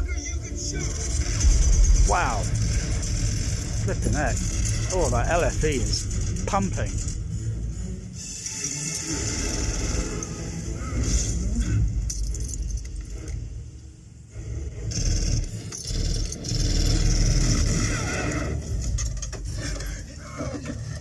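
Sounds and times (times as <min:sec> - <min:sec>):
deep low rumble: 0:01.1 - 0:06.5.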